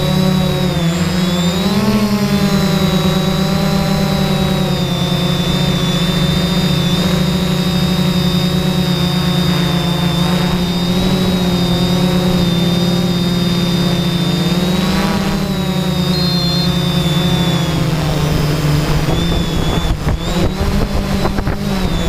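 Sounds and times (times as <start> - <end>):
drone motors humming and whining: 0.0 - 22.0.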